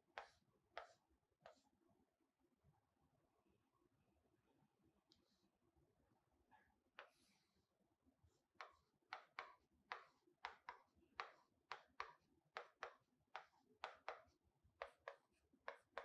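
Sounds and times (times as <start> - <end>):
stylus tapping on screen: 8.6 - 16.0.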